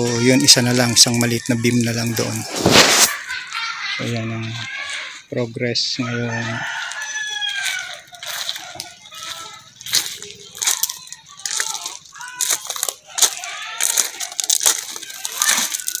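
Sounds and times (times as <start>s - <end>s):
birds chirping: 3.1s - 16.0s
rooster crowing: 5.9s - 9.4s.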